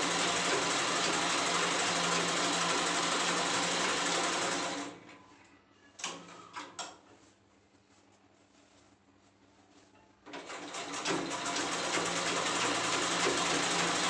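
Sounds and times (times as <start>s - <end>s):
sewing machine running: 0.0s - 5.0s, 10.4s - 14.0s.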